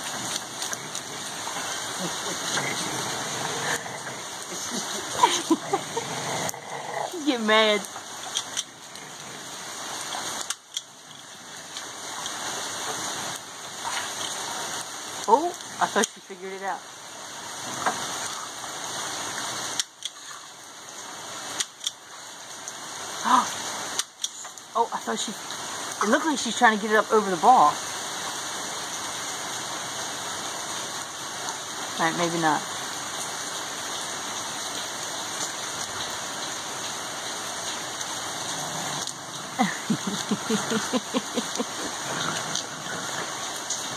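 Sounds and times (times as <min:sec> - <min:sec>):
rain hissing: 0:00.0 - 0:43.9
dog growling and huffing: 0:00.2 - 0:07.2, 0:38.3 - 0:43.6.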